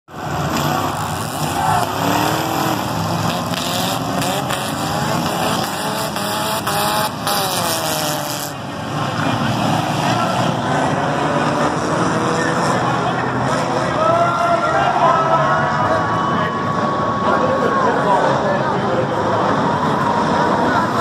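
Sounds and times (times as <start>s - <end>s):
race car engines: 0.1s - 21.0s.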